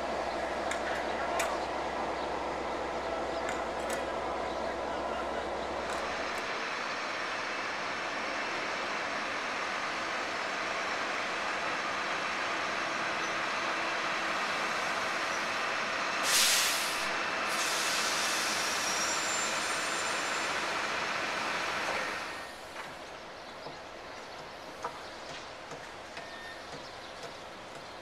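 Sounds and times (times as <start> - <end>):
train running noise: 0.0 - 28.0
air brake hiss: 16.2 - 20.6.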